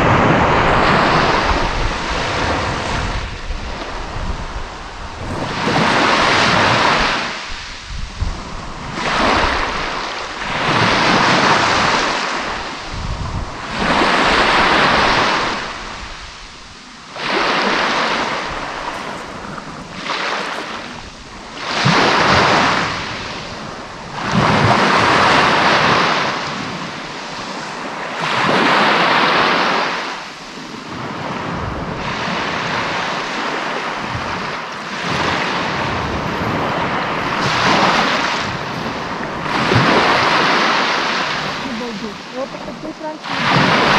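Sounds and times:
waves washing onto shore: 0:00.0 - 0:43.9
wind buffeting microphone: 0:00.0 - 0:43.9.

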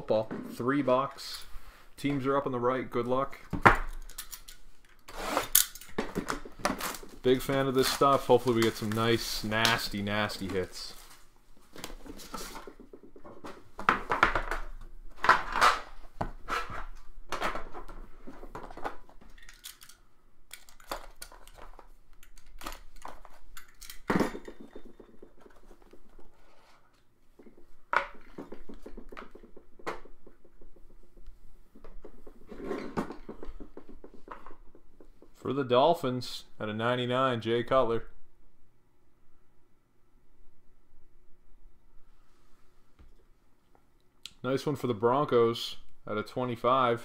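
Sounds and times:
rustling: 0:06.4 - 0:14.2.

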